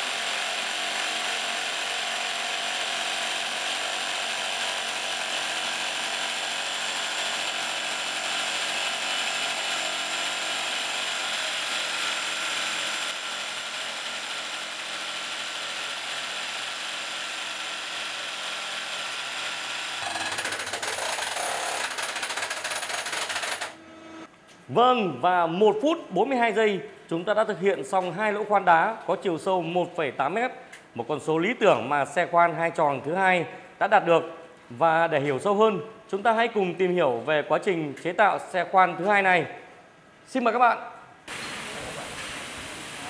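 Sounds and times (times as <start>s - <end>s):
rock drills hammering: 0.0s - 23.8s.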